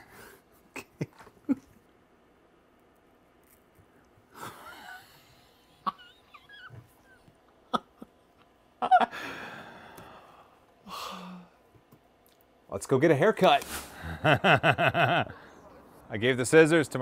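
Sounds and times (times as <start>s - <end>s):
man laughing breathlessly: 4.3s - 8.1s, 8.8s - 10.2s, 13.9s - 15.6s.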